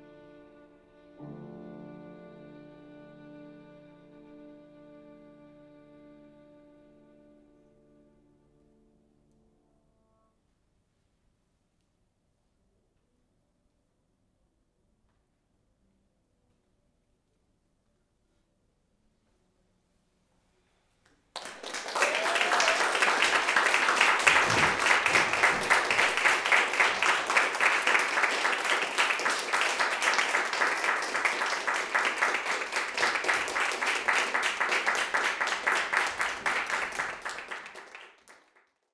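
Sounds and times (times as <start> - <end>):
audience applause: 21.4 - 38.7.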